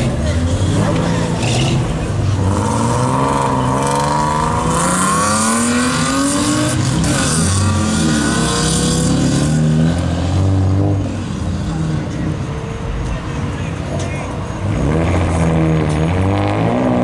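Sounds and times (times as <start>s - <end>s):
car engine accelerating hard: 14.5s - 17.0s.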